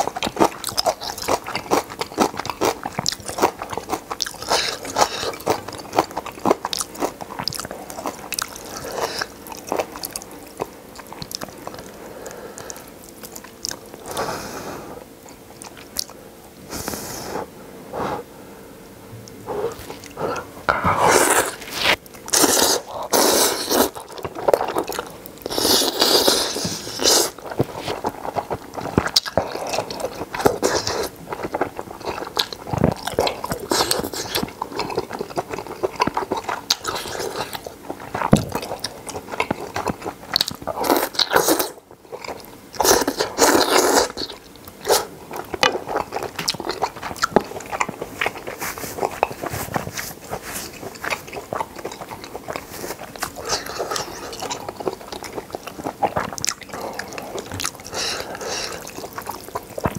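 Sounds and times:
wet chewing and smacking: 0.0 - 12.0, 12.6 - 14.0, 21.5 - 59.9
person slurping noodles: 19.5 - 24.0.

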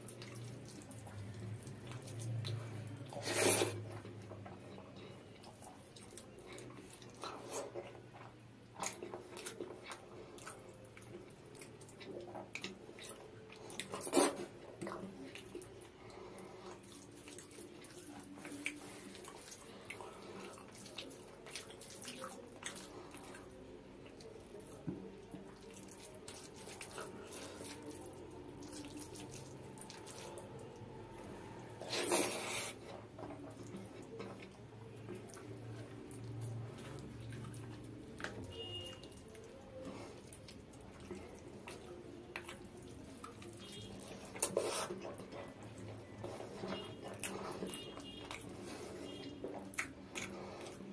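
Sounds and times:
fingers squelching mixing food: 0.0 - 50.9.

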